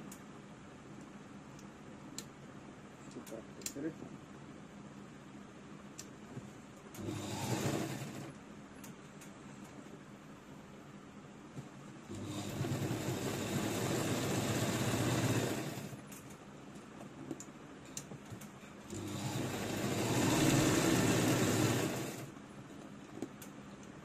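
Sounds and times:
soft clicks: 0:03.0 - 0:03.8
sewing machine motor running: 0:07.0 - 0:08.4, 0:12.1 - 0:16.0, 0:18.9 - 0:22.3.

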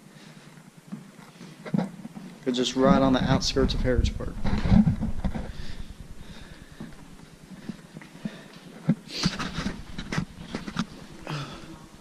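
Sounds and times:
footsteps on wooden floor: 0:04.4 - 0:11.2.

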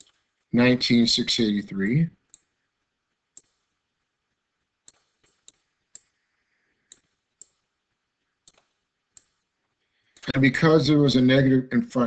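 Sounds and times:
stylus clicking on drawing tablet: 0:00.0 - 0:00.5, 0:02.2 - 0:06.2, 0:06.8 - 0:10.4.

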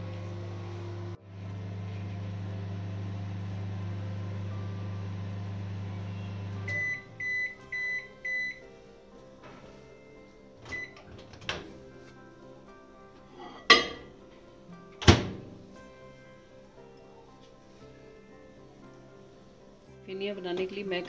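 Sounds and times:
microwave oven humming: 0:00.0 - 0:19.4.

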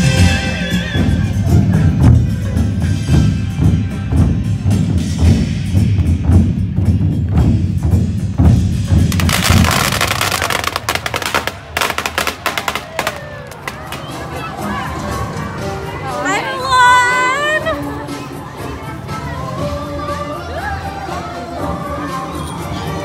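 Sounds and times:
heavy drum beat: 0:00.0 - 0:14.0
fast percussion run: 0:00.0 - 0:14.2.

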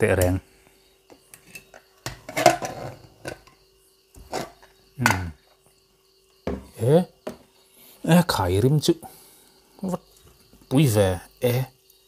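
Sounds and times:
metal lid clanks and scrapes: 0:01.3 - 0:03.6, 0:04.2 - 0:05.2.

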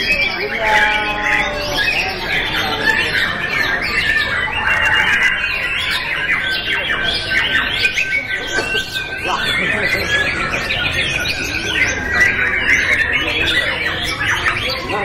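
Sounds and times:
chorus of songbirds singing: 0:00.0 - 0:15.0.

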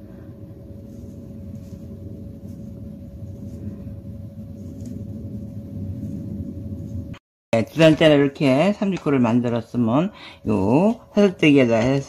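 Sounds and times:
low background rumble: 0:00.0 - 0:08.7
faint constant hum: 0:00.0 - 0:12.0.

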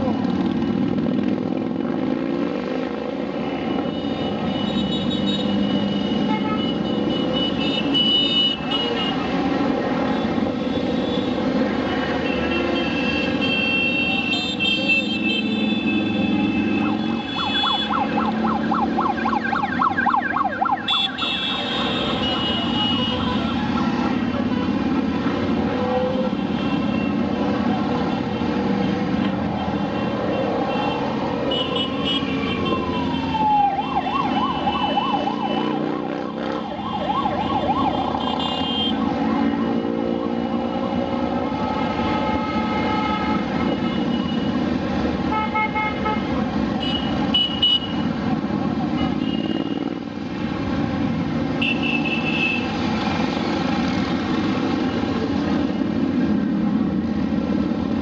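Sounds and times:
siren wail: 0:16.0 - 0:26.4, 0:32.2 - 0:44.8
motorcycles riding past: 0:21.6 - 0:41.4.

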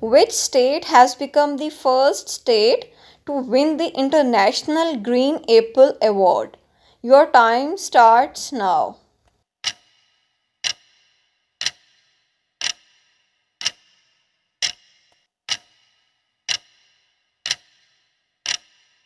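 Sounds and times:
clock ticks: 0:09.6 - 0:19.0.

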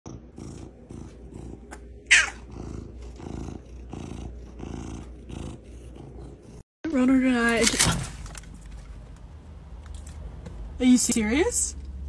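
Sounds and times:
cat purring: 0:00.1 - 0:06.6
cat high cry: 0:02.1 - 0:02.4.

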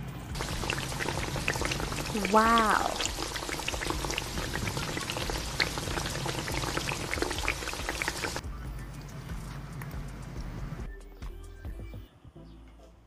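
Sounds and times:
pasta sizzling in a hot pan: 0:00.4 - 0:08.4.

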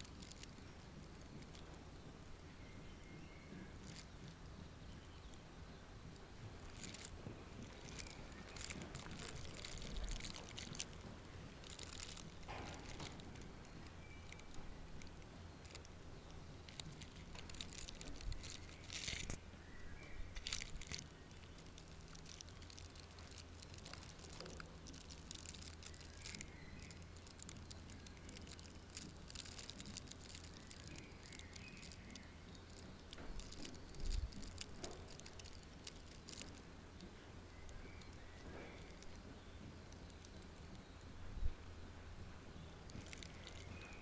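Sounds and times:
short rustling: 0:06.1 - 0:19.4.

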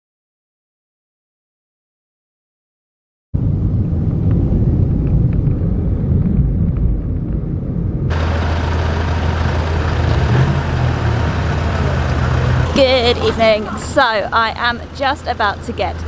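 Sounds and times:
muffled vehicle rumble: 0:03.4 - 0:16.0
outdoor traffic noise: 0:03.4 - 0:16.0
steady low hum: 0:03.4 - 0:16.0.

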